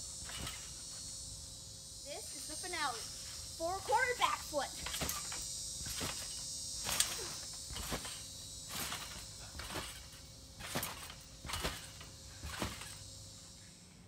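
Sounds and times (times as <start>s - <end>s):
trampoline springs thudding: 0.0s - 13.8s
high-pitched insect buzz: 0.0s - 14.0s.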